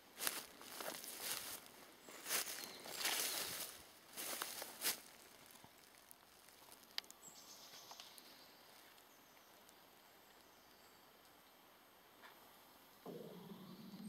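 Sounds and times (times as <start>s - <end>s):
footsteps on dry leaves: 0.0s - 7.2s
faint clicks and rustles: 0.2s - 7.2s.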